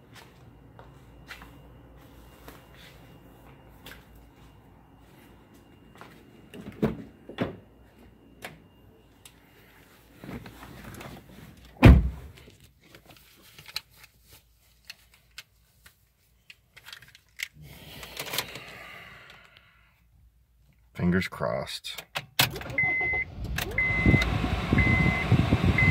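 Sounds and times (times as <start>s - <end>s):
car door shutting with thud: 11.8s - 12.3s.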